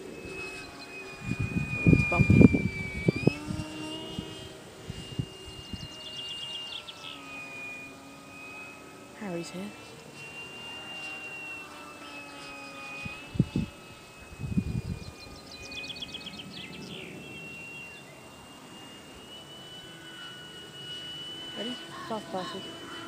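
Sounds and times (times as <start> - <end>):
wind buffeting microphone: 0.0 - 6.2, 12.8 - 17.4
model plane motor whine: 0.0 - 23.0.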